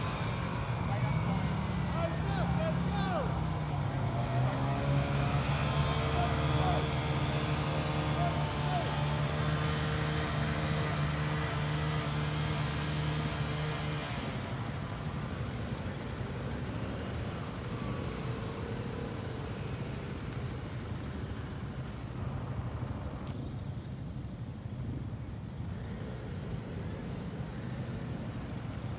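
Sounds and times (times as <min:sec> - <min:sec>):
nearby motorcycle engine: 0:00.0 - 0:20.1
motorcycles rumbling: 0:00.0 - 0:28.9.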